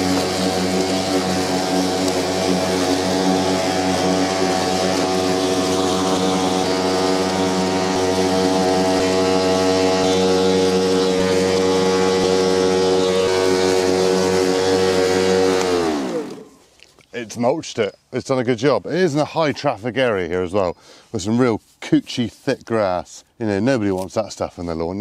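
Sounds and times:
lawn mower motor and blade whine: 0:00.0 - 0:17.1.

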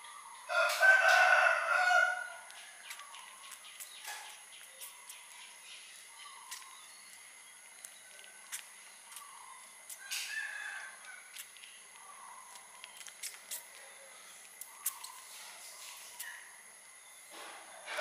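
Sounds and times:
rooster crowing: 0:00.5 - 0:02.6, 0:10.0 - 0:11.3
faint chirps and clicks: 0:02.5 - 0:10.3, 0:11.0 - 0:16.5.

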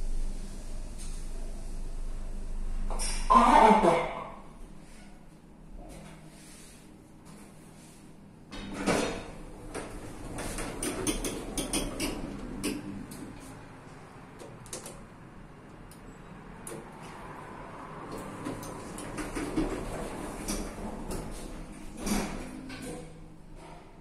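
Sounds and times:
lift doors sliding: 0:08.6 - 0:13.8, 0:16.0 - 0:23.8
sharp clicks and knocks: 0:09.7 - 0:13.2.

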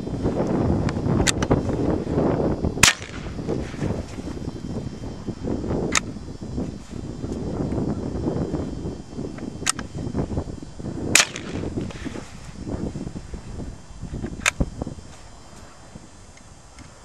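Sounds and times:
rifle gunshots: 0:02.8 - 0:03.3, 0:11.1 - 0:11.6.

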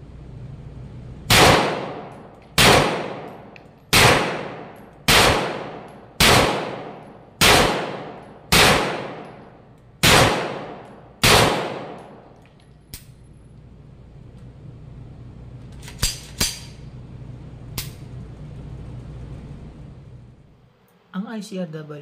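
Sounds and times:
carbine gunshots reverberating: 0:01.3 - 0:12.4.

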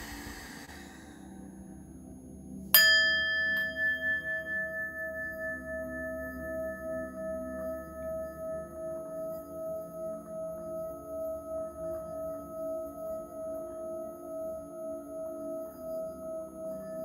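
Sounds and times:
singing bowl ringing: 0:01.9 - 0:17.0.

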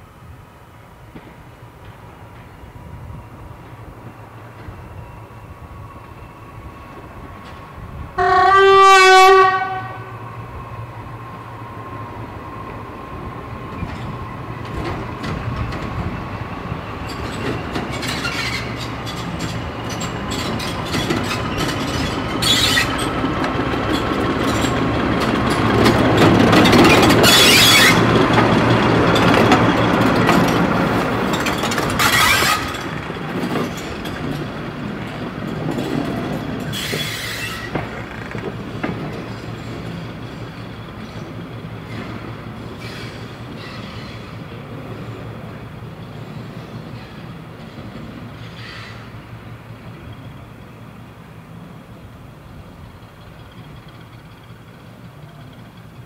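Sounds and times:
diesel locomotive engine passing: 0:00.0 - 0:56.0
wheel and rail noise: 0:00.0 - 0:56.0.

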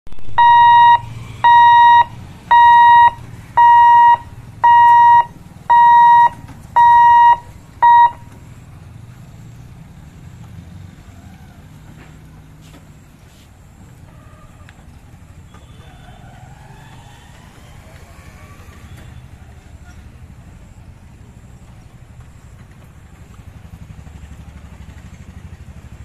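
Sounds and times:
road traffic rumble: 0:00.1 - 0:26.0
level crossing warning beeps: 0:00.3 - 0:08.4.

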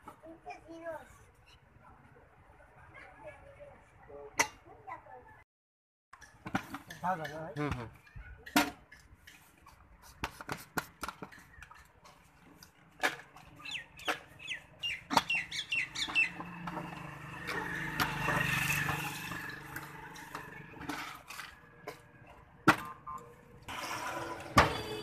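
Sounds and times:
bird chirps: 0:13.6 - 0:16.4.

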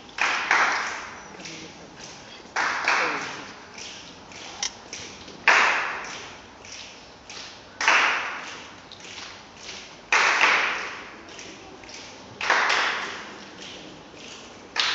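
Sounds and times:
body percussion hits in unison: 0:00.0 - 0:14.9.

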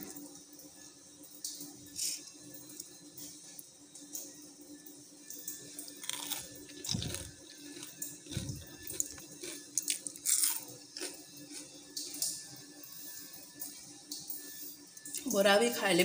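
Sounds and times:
crunchy chewing: 0:05.9 - 0:12.3.

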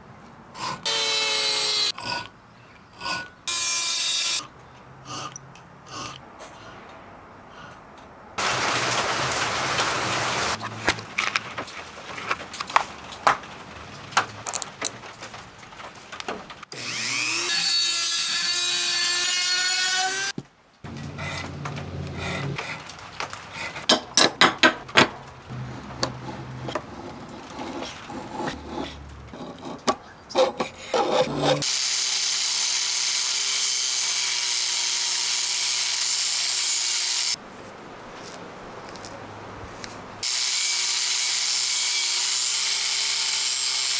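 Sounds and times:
power tool whining: 0:16.7 - 0:20.3
file scraping metal: 0:26.0 - 0:31.6.

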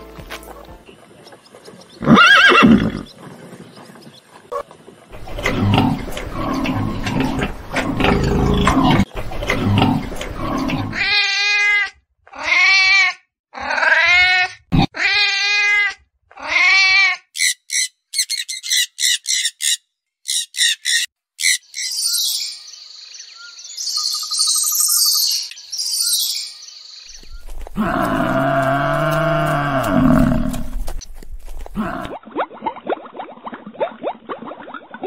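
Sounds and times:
rough noisy animal sound: 0:01.2 - 0:11.8, 0:27.2 - 0:32.2.

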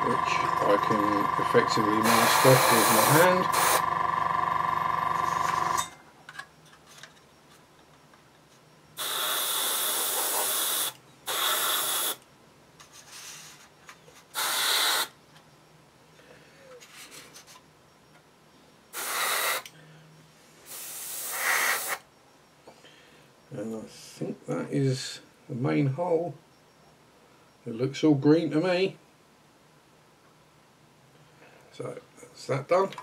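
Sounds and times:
airbrush compressor humming: 0:00.0 - 0:05.9
airbrush spraying hiss: 0:02.0 - 0:03.8, 0:09.0 - 0:12.2, 0:14.4 - 0:15.1, 0:19.0 - 0:19.6, 0:20.7 - 0:22.0.

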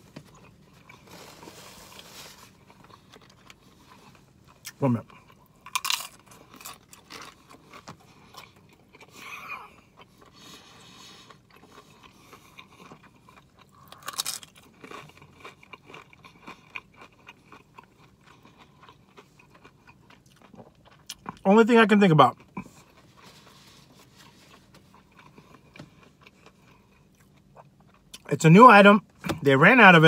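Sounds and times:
chips crunching: 0:05.6 - 0:09.1, 0:11.3 - 0:21.4.

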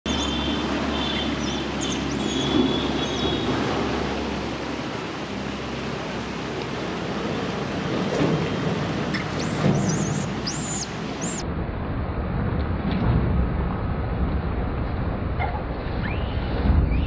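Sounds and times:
outdoor rushing noise: 0:00.1 - 0:17.0
high thin chirps and whistles: 0:09.1 - 0:11.4.

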